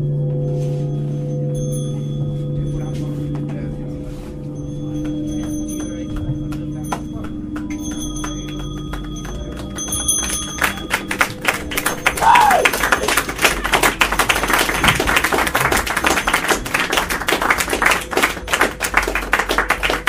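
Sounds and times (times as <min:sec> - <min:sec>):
audience clapping: 0:06.2 - 0:20.0
short falling whistle or cry: 0:12.2 - 0:12.7.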